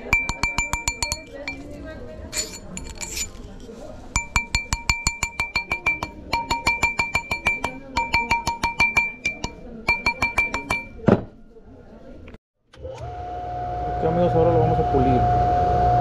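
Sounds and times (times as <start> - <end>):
hammer tapping on steel mandrel: 0.0 - 1.6, 4.2 - 11.1.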